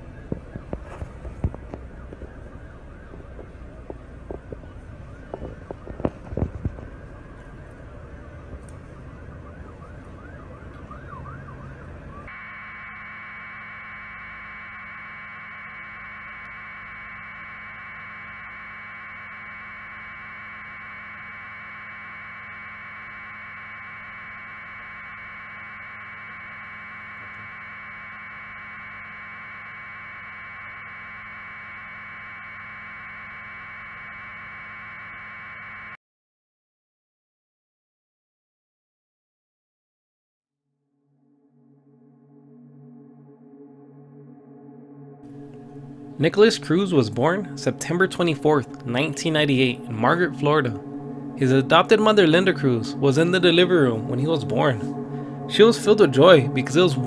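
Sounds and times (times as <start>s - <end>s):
outdoor background noise: 0.0s - 36.0s.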